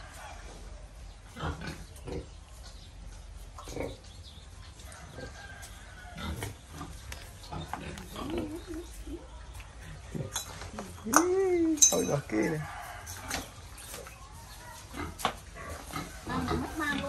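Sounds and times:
pigs grunting: 0:01.3 - 0:02.5, 0:03.6 - 0:04.1, 0:06.1 - 0:09.1, 0:14.8 - 0:17.0.

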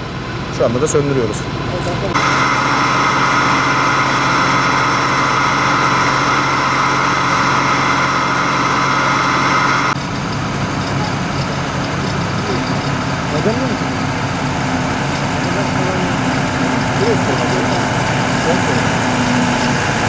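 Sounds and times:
fire truck engine running: 0:00.0 - 0:20.0
high-pitched whine: 0:01.8 - 0:20.0.

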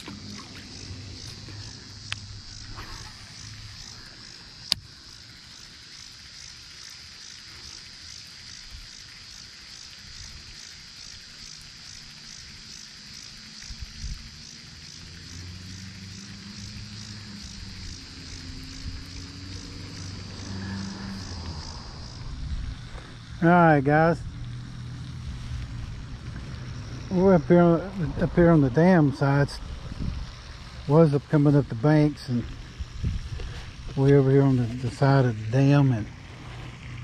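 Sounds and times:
insects pulsing chorus: 0:00.0 - 0:37.0.

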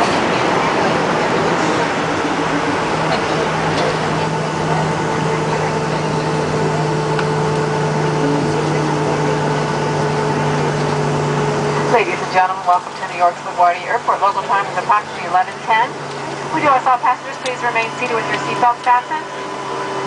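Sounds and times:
aircraft engine and airflow rush: 0:00.0 - 0:20.0
low cabin hum: 0:00.0 - 0:20.0.

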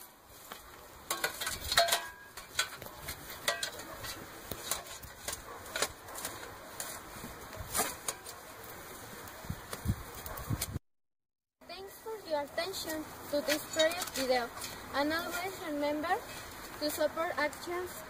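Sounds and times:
hand tool digging stony soil: 0:00.4 - 0:08.4, 0:12.8 - 0:17.8.

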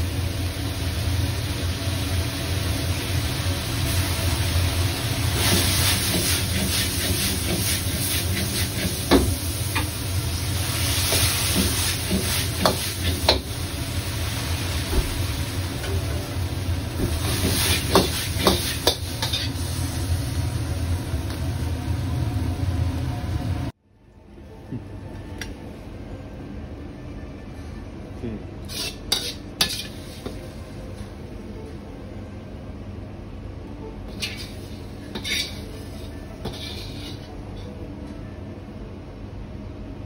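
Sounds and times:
vegetables sizzling in a pan: 0:00.0 - 0:23.7, 0:28.7 - 0:30.4, 0:34.1 - 0:37.3.

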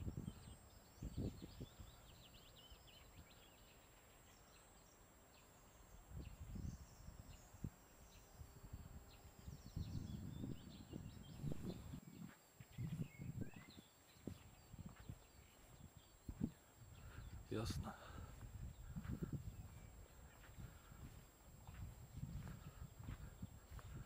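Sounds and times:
small songbirds chirping: 0:00.0 - 0:24.0
footsteps on leafy dirt path: 0:18.3 - 0:24.0.

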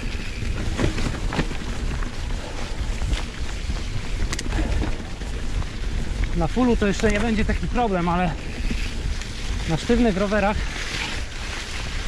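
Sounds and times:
bike tyres rolling over leaves: 0:00.0 - 0:12.0
wind noise on microphone: 0:00.0 - 0:12.0
bike knocks and rattles: 0:00.1 - 0:07.8.

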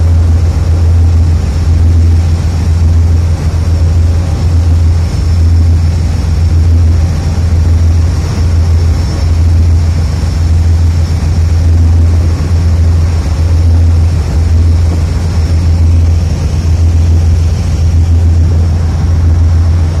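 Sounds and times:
ship engine low rumble: 0:00.0 - 0:20.0
water rushing along hull: 0:00.0 - 0:20.0.

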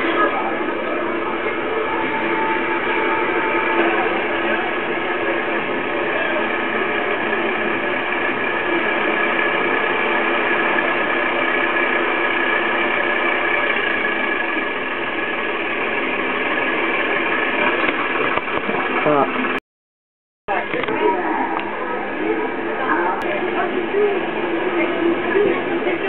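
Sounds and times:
steady tones: 0:00.0 - 0:19.6
tractor engine running: 0:00.0 - 0:19.6.

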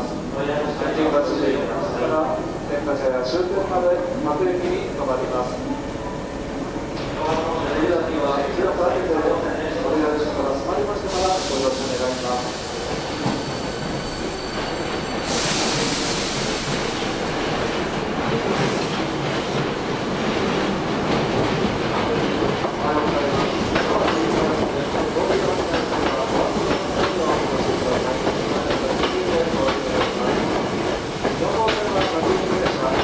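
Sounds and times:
train hum: 0:00.0 - 0:33.0
train pulling in and stopping: 0:00.0 - 0:33.0
compressed air hiss: 0:11.0 - 0:13.0, 0:15.2 - 0:17.1.

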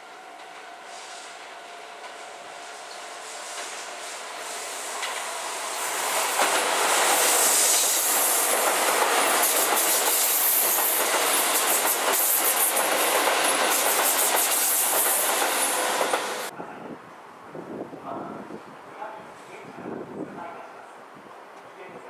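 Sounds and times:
train wheels clickety-clack: 0:02.9 - 0:03.9, 0:04.9 - 0:05.3, 0:06.2 - 0:16.5.

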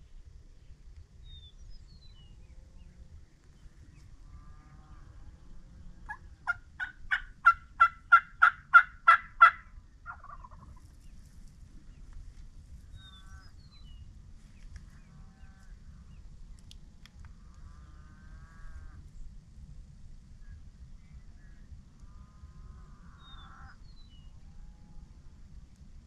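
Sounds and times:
wild turkey yelping: 0:06.0 - 0:10.8.

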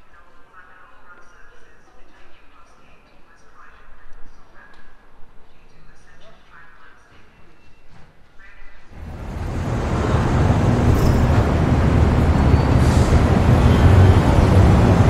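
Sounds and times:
large road vehicle rumble: 0:09.0 - 0:15.0.

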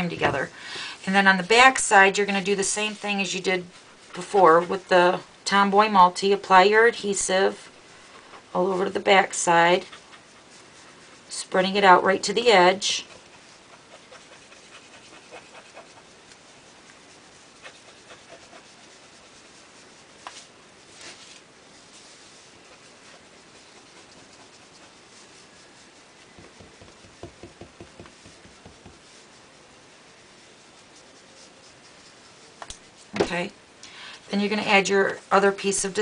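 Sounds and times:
glue applicator scratching on plastic: 0:11.6 - 0:20.4, 0:22.7 - 0:29.2.

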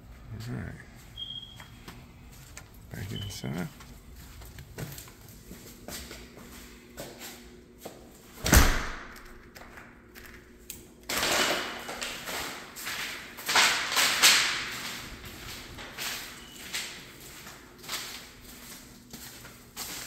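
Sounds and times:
footsteps scuffing on paper: 0:01.0 - 0:08.3, 0:14.7 - 0:20.0
door thudding shut: 0:08.4 - 0:09.2.

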